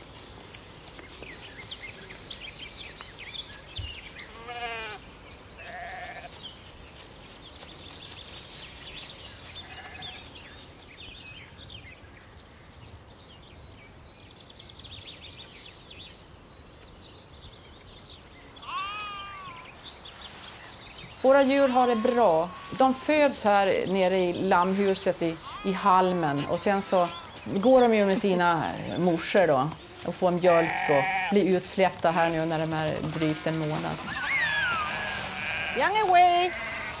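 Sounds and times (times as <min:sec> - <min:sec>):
outdoor background: 0:00.0 - 0:37.0
sheep bleating: 0:04.3 - 0:05.0, 0:05.6 - 0:06.3, 0:09.6 - 0:10.2, 0:18.6 - 0:19.7, 0:21.6 - 0:23.1, 0:25.3 - 0:27.4, 0:30.4 - 0:31.5, 0:33.2 - 0:37.0.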